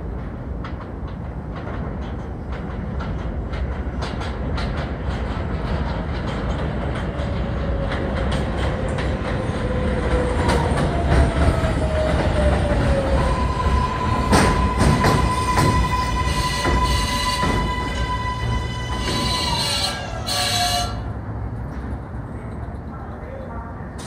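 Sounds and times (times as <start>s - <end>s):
subway train rumble: 0.0s - 24.0s
wheels clicking over rail joints: 0.1s - 21.0s
falling whine of train slowing: 5.0s - 22.0s.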